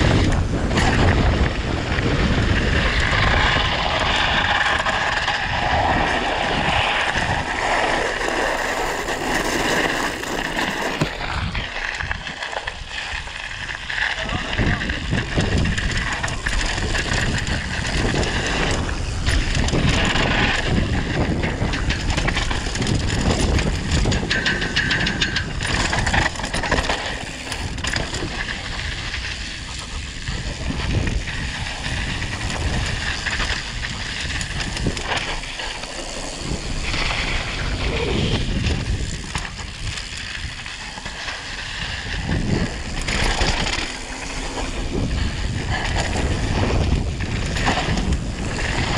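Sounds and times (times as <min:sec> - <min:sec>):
bike rattling over bumps: 0:00.0 - 0:48.9
wind noise on microphone: 0:00.0 - 0:48.9
tyres crunching over gravel: 0:02.0 - 0:48.9.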